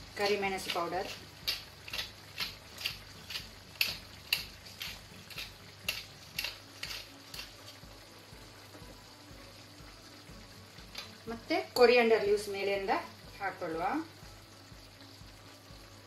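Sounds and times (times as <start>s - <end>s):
spoon scraping a frying pan: 0.2s - 7.8s.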